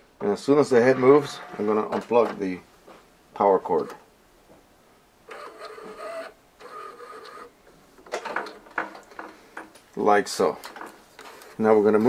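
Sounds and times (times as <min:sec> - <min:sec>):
printer carriage motor whirring: 0:05.3 - 0:07.5
clicks and knocks: 0:08.0 - 0:09.9.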